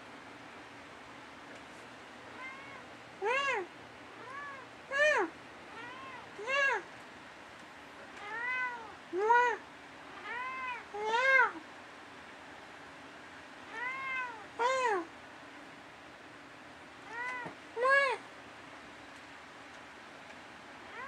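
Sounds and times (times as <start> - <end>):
cat meowing: 2.3 - 4.7, 5.7 - 6.8, 8.2 - 9.0, 10.1 - 11.6, 13.7 - 14.5, 17.1 - 18.0.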